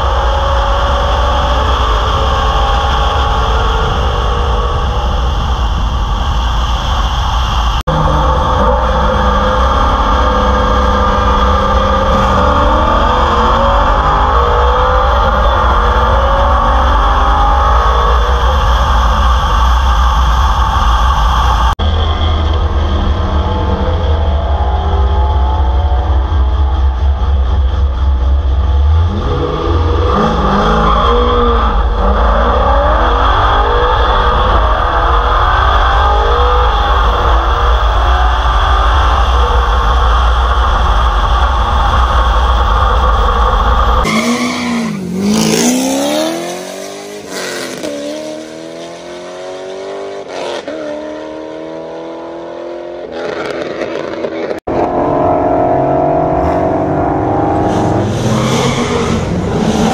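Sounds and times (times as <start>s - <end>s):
wind rumble: 0.0s - 50.8s
car engine at full throttle: 0.0s - 59.9s
race car engines revving past: 44.0s - 59.9s.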